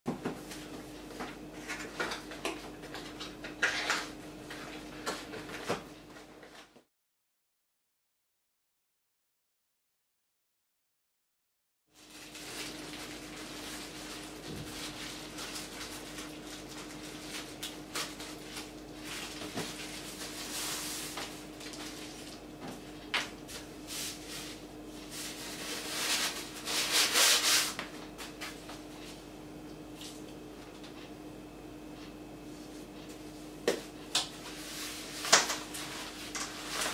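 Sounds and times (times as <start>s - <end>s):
plastic wrapping crinkling: 12.0s - 22.5s, 23.2s - 28.6s, 34.7s - 36.9s.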